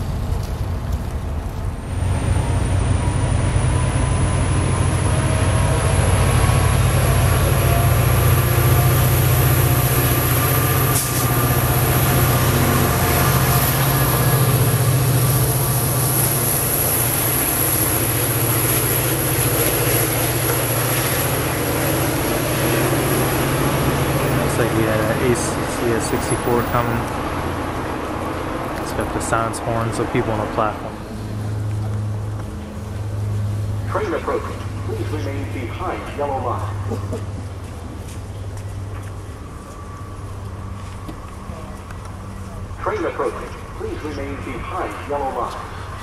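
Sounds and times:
diesel locomotive engine drone: 0.0s - 46.0s
train running past: 0.0s - 46.0s
high whine rising in pitch: 1.8s - 27.9s.

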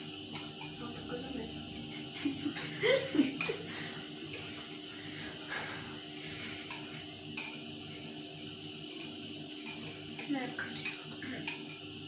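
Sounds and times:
whisk clinking against bowl: 9.0s - 11.9s.

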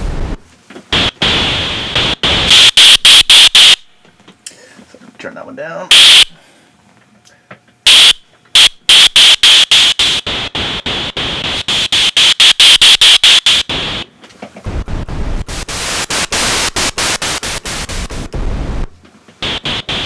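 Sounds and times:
synthesizer noise bursts: 0.0s - 3.9s, 5.9s - 6.4s, 7.9s - 14.1s, 14.7s - 20.0s.

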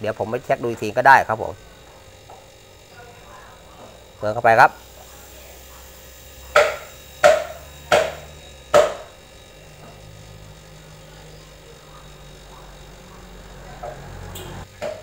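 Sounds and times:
refrigerator compressor hum: 0.0s - 15.0s
sharp ringing knocks: 6.5s - 9.2s.

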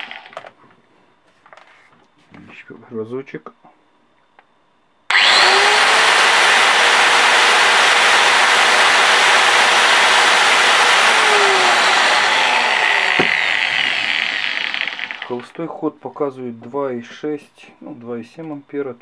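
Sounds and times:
angle grinder whining: 0.0s - 0.4s, 5.1s - 15.6s.

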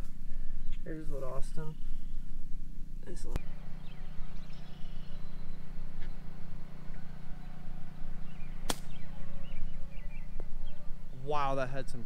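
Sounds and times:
steady low hum: 0.0s - 12.0s
golf club striking ball: 8.4s - 9.1s.

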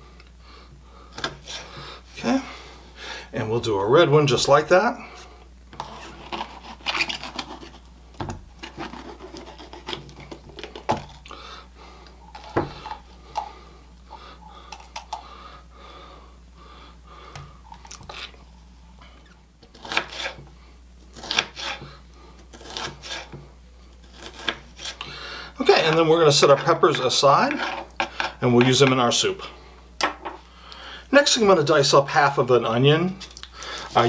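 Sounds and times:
knife chopping on wooden board: 12.4s - 13.0s, 21.2s - 21.9s.

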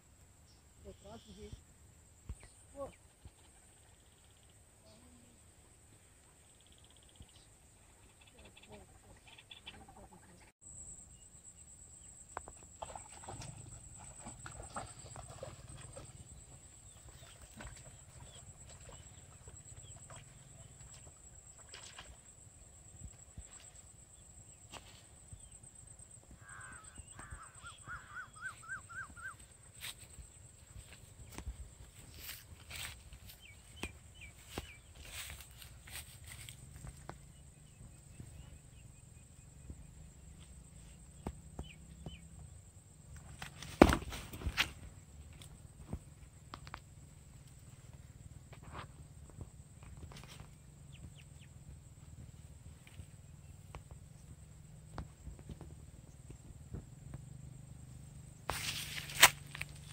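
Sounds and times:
faint bird chirps: 6.4s - 12.6s, 26.3s - 31.5s
bird chirps: 26.5s - 29.5s
rustling thump: 43.4s - 44.8s.

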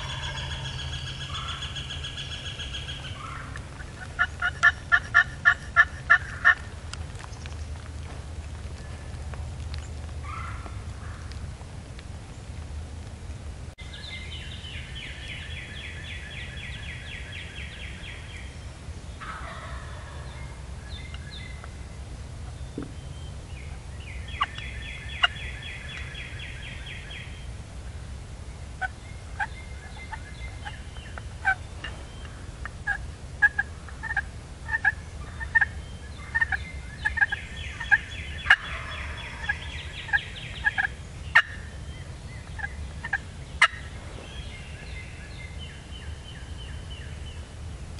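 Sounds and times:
turkey gobbling: 0.0s - 6.6s, 19.2s - 20.6s, 25.2s - 26.1s, 28.8s - 30.8s, 31.4s - 41.7s, 42.5s - 44.0s.

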